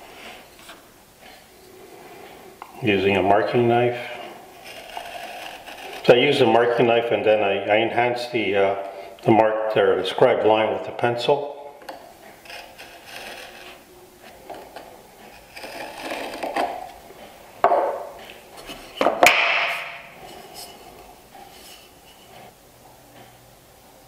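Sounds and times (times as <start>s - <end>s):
knife scratching wood: 4.1s - 6.8s, 12.2s - 17.0s
handling wooden boards: 11.8s - 22.5s
wood knocking on workbench: 17.6s - 18.1s.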